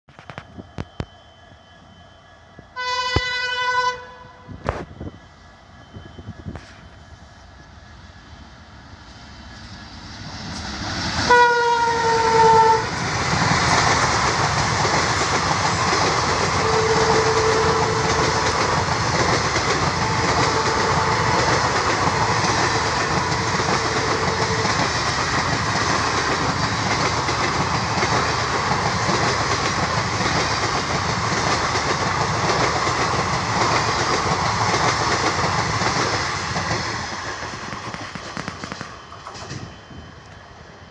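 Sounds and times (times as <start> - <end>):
diesel locomotive engines: 0.1 - 40.9
train horn: 2.8 - 4.8, 11.2 - 13.0, 16.5 - 18.6, 19.9 - 21.6, 22.7 - 24.9
train wheels clattering over rail joints: 12.8 - 40.0.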